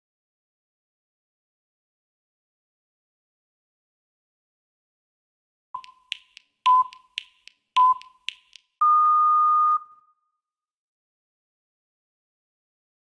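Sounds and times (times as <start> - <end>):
sharp clicks: 5.8 - 8.8
short timer beeps: 5.8 - 10.1
longer higher timer beep: 6.7 - 7.1, 8.8 - 10.2.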